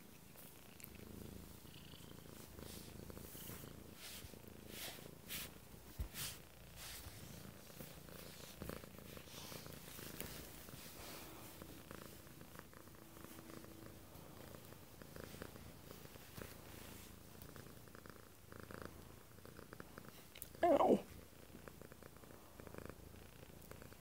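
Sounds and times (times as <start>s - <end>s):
cat purring: 0.0s - 24.0s.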